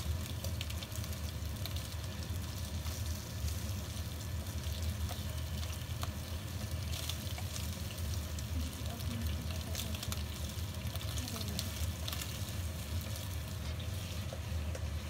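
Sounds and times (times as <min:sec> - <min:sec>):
prawns sizzling in hot oil: 0:00.0 - 0:15.0
spatula stirring in wok: 0:00.1 - 0:15.0.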